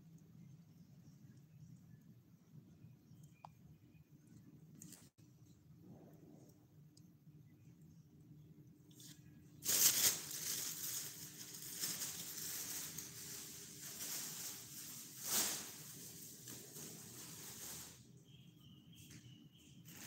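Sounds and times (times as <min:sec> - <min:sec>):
rustling and scuffing: 0:09.6 - 0:18.0.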